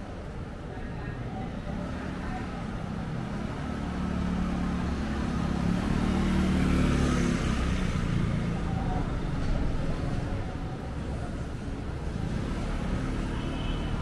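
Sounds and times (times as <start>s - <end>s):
street traffic noise: 0.0s - 14.0s
vehicle engine passing by: 1.8s - 10.3s.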